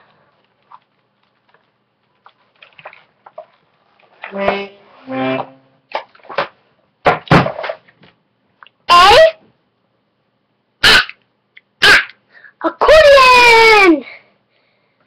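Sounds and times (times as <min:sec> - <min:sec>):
loud short sound: 0:04.3 - 0:05.8.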